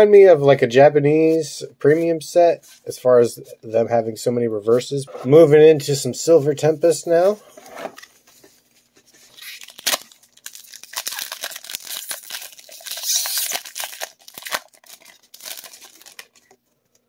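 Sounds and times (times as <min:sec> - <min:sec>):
foil wrapper tearing and crinkling: 0:09.2 - 0:16.6.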